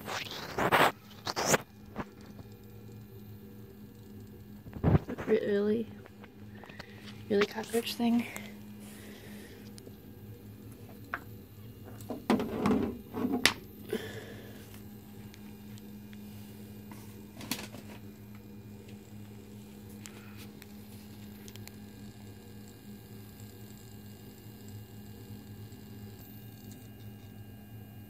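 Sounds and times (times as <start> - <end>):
toy motor buzzing: 0.0 - 1.7.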